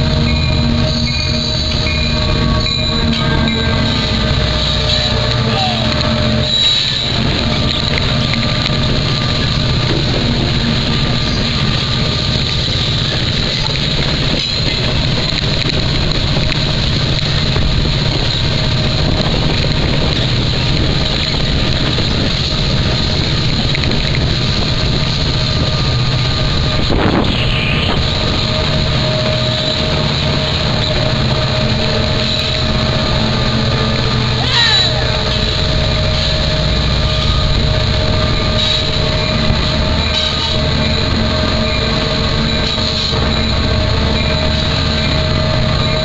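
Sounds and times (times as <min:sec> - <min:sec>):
diesel locomotive engines: 0:00.0 - 0:46.0
freight train rolling: 0:00.0 - 0:46.0.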